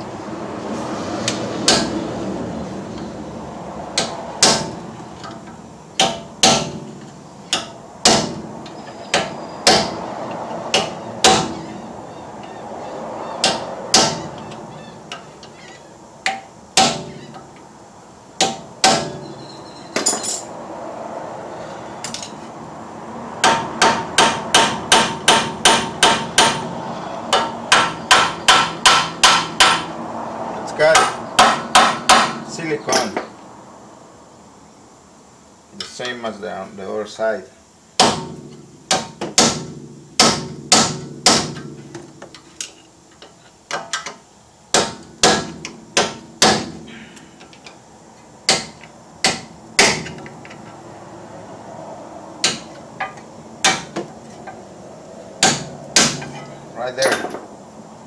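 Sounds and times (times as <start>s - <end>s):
hammer striking metal: 4.0s - 4.8s, 6.0s - 6.9s, 9.1s - 10.0s, 10.7s - 11.6s, 13.4s - 14.3s, 18.4s - 19.3s, 23.4s - 26.7s, 27.3s - 29.9s, 30.9s - 33.2s, 38.0s - 41.7s, 44.7s - 46.8s, 48.5s - 50.2s, 52.4s - 54.0s, 55.4s - 57.4s.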